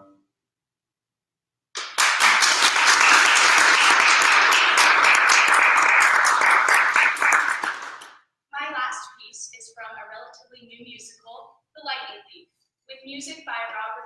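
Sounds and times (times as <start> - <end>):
audience applause: 1.8 - 8.2.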